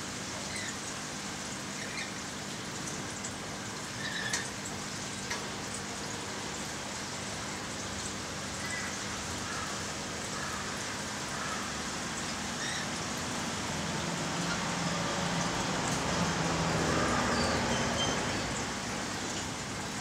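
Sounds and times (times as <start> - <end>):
trickling water: 0.0 - 20.0.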